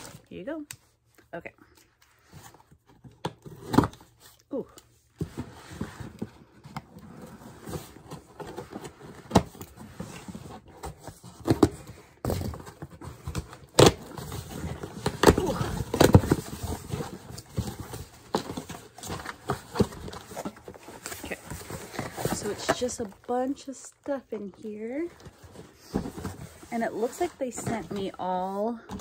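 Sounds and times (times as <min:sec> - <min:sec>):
packaging rustling and crinkling: 0:05.3 - 0:28.7.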